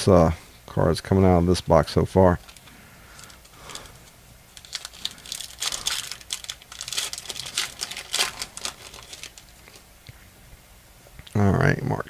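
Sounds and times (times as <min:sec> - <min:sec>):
wrapper tearing and crinkling: 0:02.4 - 0:09.8.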